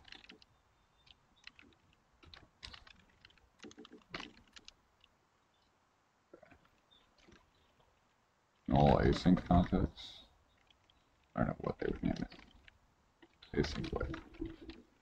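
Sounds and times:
computer keyboard typing: 0:00.0 - 0:04.8.

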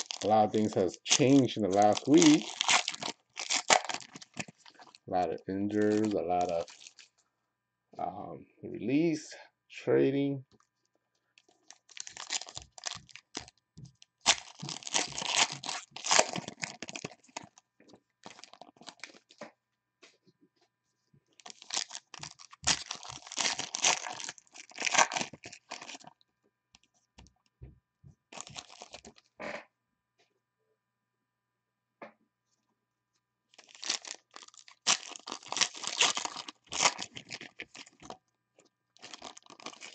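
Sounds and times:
foil wrappers ripping: 0:00.0 - 0:07.1, 0:11.4 - 0:13.5, 0:14.2 - 0:17.6, 0:18.2 - 0:19.4, 0:21.4 - 0:26.1, 0:28.4 - 0:29.2, 0:33.6 - 0:38.2, 0:39.0 - 0:39.9.

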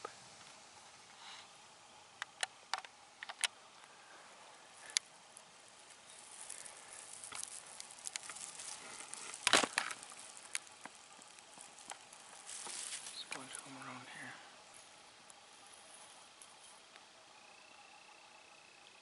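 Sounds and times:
dry leaves rustling and crackling: 0:03.8 - 0:16.9.

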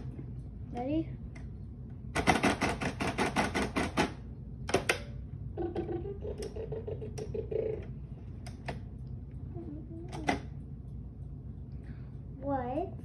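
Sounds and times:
rapid sharp clicks: 0:02.1 - 0:05.0.

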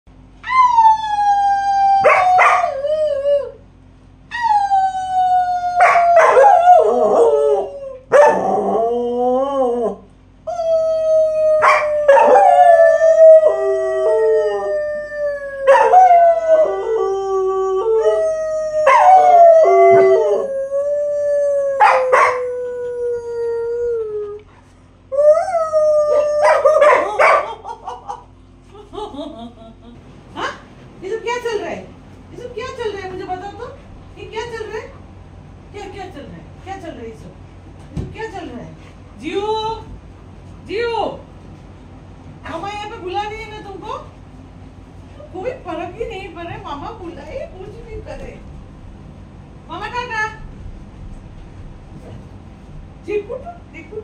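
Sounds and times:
dog howling: 0:00.4 - 0:03.6, 0:04.3 - 0:24.4, 0:25.1 - 0:27.6
woman howling: 0:00.4 - 0:03.6, 0:04.3 - 0:24.4, 0:25.1 - 0:27.2.

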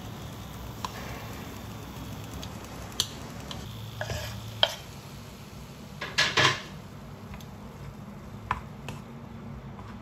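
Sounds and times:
sausages scraped into frying pan: 0:04.0 - 0:04.9.

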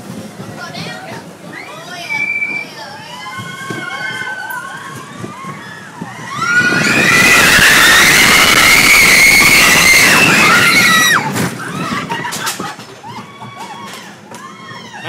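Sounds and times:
roller coaster rumble and rattle: 0:00.0 - 0:15.0
riders screaming: 0:02.1 - 0:12.4.

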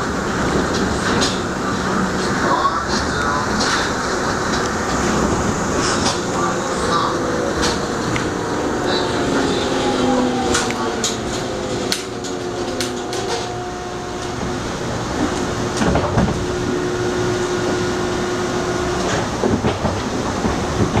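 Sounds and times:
electric subway train rumbling: 0:00.0 - 0:21.0
sharp clicks and clacks: 0:10.5 - 0:13.5.

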